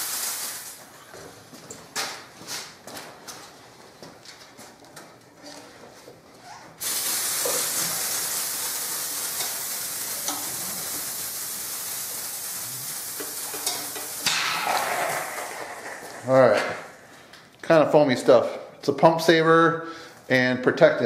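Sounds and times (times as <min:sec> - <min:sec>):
pressurised spray hissing: 0:00.0 - 0:00.8, 0:06.8 - 0:17.1.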